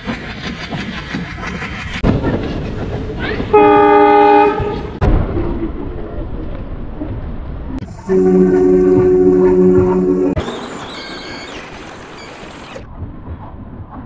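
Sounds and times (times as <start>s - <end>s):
train rumbling: 0.0s - 14.0s
locomotive horn: 3.5s - 4.9s, 7.8s - 10.4s.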